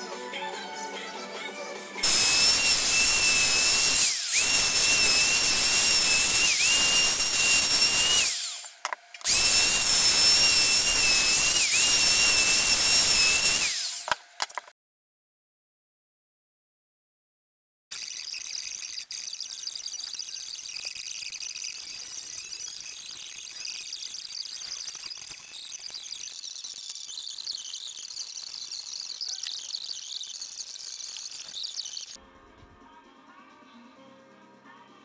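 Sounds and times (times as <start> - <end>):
electric router whining: 2.0 - 14.5
router spinning down: 2.0 - 14.6, 17.9 - 32.2.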